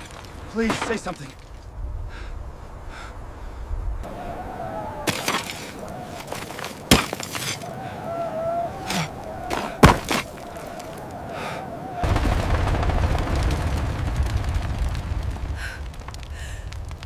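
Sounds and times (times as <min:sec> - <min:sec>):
rubble clattering and crashing: 0:00.0 - 0:01.7, 0:04.9 - 0:07.8, 0:08.9 - 0:11.2, 0:12.0 - 0:17.0.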